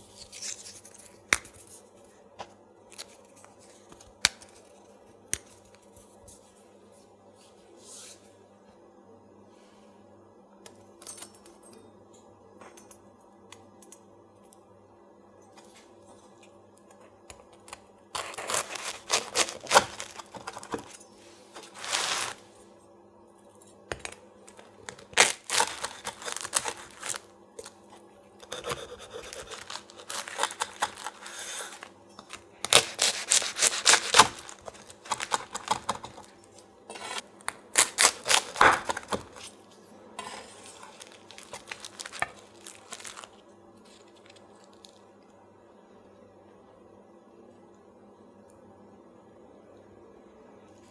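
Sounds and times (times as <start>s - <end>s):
knife cutting crisp pastry crust: 18.2s - 20.7s, 28.4s - 31.9s, 32.6s - 36.2s, 36.9s - 39.5s.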